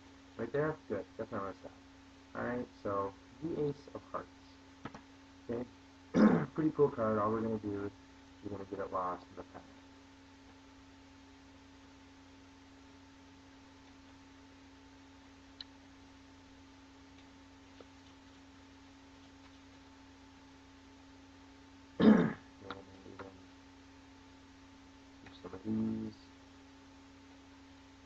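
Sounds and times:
low electrical hum: 0.0s - 28.0s
person clearing throat: 6.1s - 6.6s, 22.0s - 22.5s.

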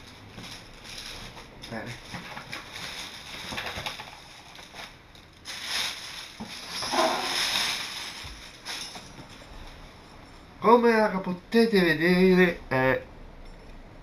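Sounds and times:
plastic wrapping crinkling: 0.0s - 10.0s.

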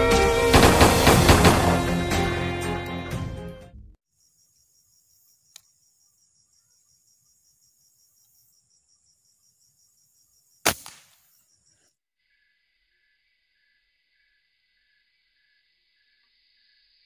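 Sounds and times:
air rifle shot: 0.5s - 1.9s, 10.6s - 11.1s
insects chirping: 4.0s - 17.0s.

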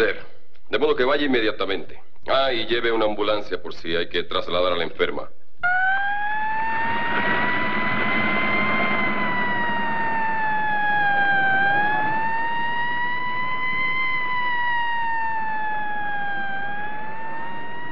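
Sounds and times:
ambulance siren wailing: 5.6s - 17.9s.

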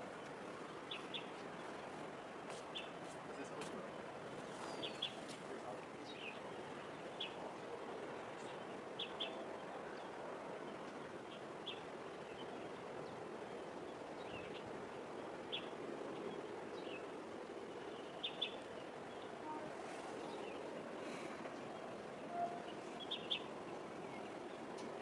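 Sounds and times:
distant harbour noise: 0.0s - 25.0s
small birds chirping: 0.1s - 7.4s, 17.7s - 24.9s.

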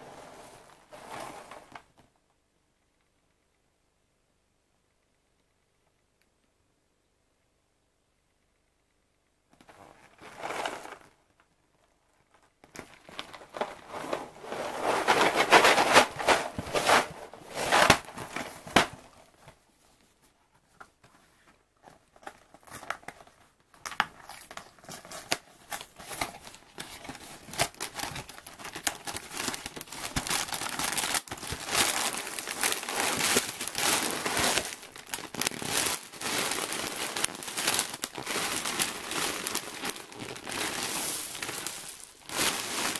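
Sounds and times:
plastic bag crinkling: 9.6s - 19.5s, 22.0s - 42.9s.

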